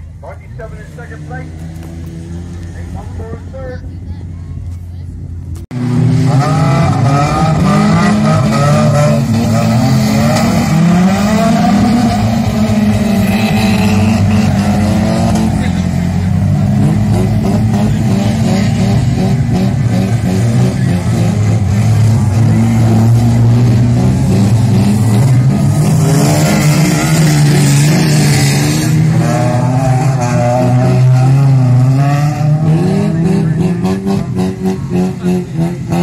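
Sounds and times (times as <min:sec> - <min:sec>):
racing car engines revving: 0:00.0 - 0:36.0.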